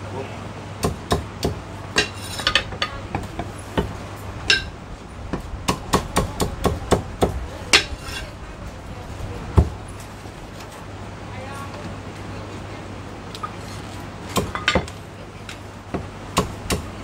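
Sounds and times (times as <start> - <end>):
cleaver chopping on wooden block: 15.9 - 16.9.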